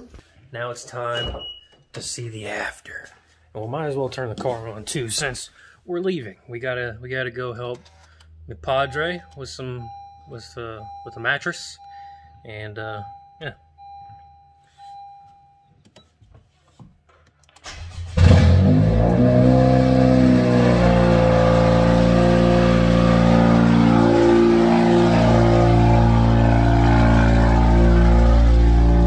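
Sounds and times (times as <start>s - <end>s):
car engine starting and idling: 17.4s - 29.0s.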